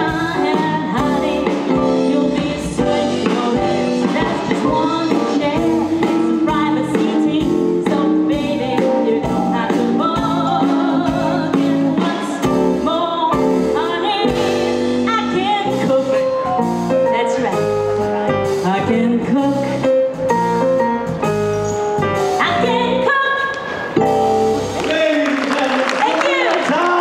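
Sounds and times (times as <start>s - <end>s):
woman singing into microphone: 0.0s - 16.5s, 17.1s - 20.1s, 22.4s - 23.6s
instrumental backing music: 0.0s - 27.0s.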